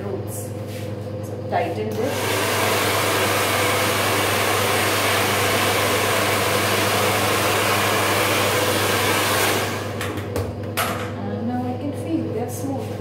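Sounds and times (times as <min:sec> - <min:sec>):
hair dryer blowing: 0:01.9 - 0:10.5.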